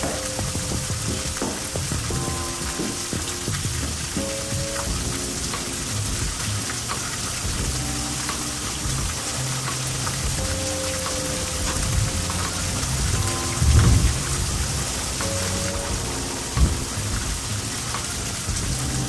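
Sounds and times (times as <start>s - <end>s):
heavy rain pouring: 0.0s - 19.0s
low rumble: 11.5s - 19.0s.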